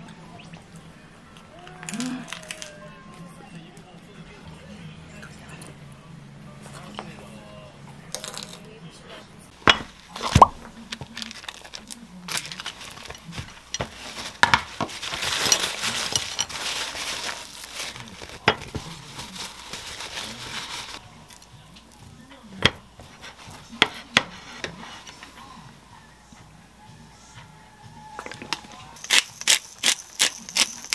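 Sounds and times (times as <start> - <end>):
plate and bottle tapping: 9.7 - 10.7
paper towel crinkling: 9.9 - 21.0, 23.0 - 25.4.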